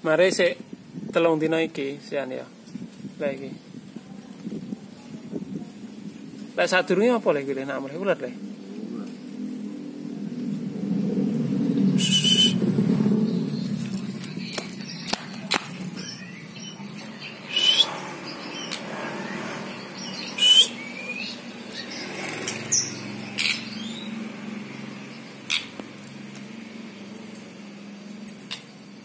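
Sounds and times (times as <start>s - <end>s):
soft whistled bird notes: 11.6s - 24.2s
bird sharp calls: 11.8s - 26.0s.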